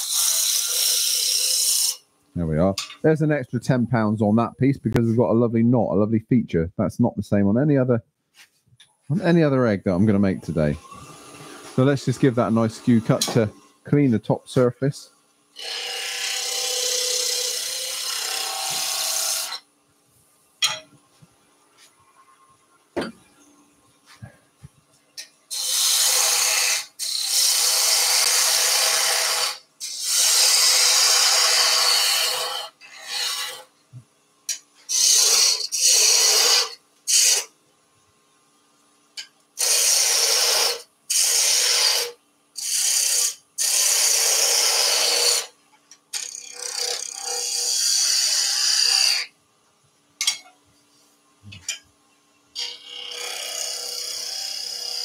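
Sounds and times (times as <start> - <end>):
woodturning tool cutting wood: 0.0 - 2.0, 9.9 - 14.7, 15.6 - 19.7, 25.5 - 33.7, 34.9 - 37.5, 39.6 - 45.5, 46.1 - 49.3, 52.6 - 55.0.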